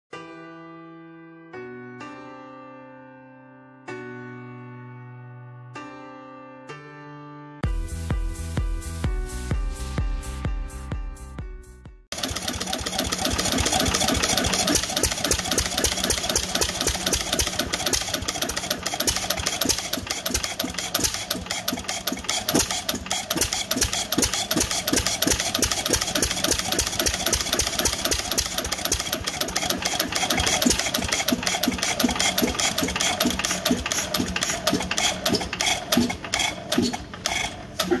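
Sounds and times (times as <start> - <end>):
stationary engine running: 12.1 - 38.0.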